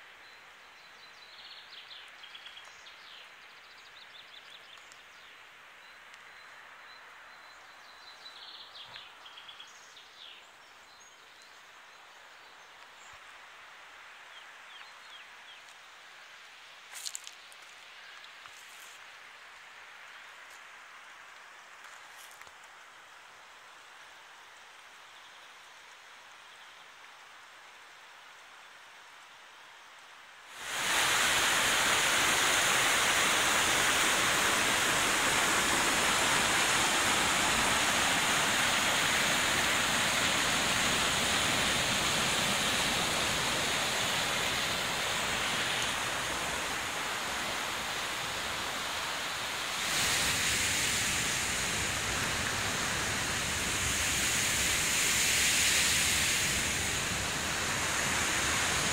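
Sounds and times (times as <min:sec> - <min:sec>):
faint steady hiss: 0:00.0 - 0:58.9
mountain stream rushing over rocks: 0:12.8 - 0:25.0, 0:30.3 - 0:58.9.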